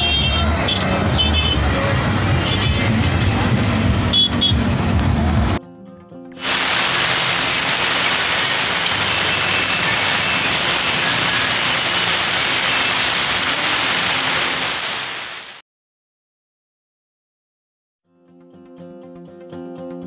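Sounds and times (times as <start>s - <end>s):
steady rain: 6.4s - 15.6s.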